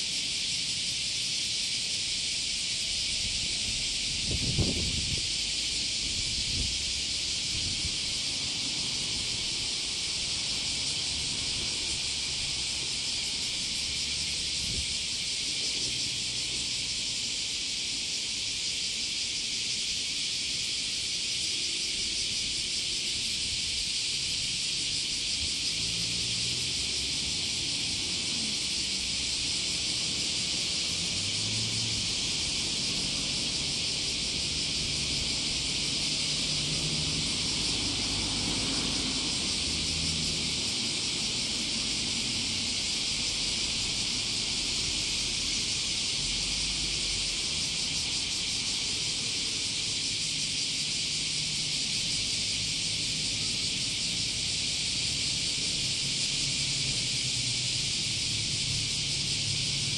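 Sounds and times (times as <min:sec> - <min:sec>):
steady high-pitched hiss: 0:00.0 - 0:59.9
wind rumble on microphone: 0:03.0 - 0:08.3, 0:14.5 - 0:15.0.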